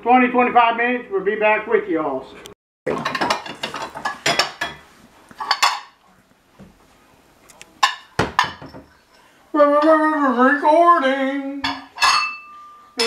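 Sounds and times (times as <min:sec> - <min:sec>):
dishes and utensils clinking: 0:02.9 - 0:06.0, 0:07.8 - 0:09.2, 0:11.6 - 0:13.0.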